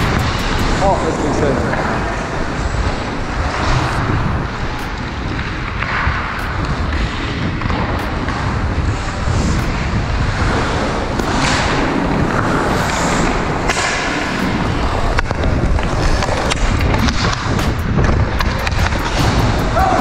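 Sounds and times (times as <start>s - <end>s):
sharp knock: 0.0s - 0.9s, 16.6s - 20.0s
wind on microphone: 0.0s - 20.0s
skate blades scraping on ice: 3.4s - 19.9s.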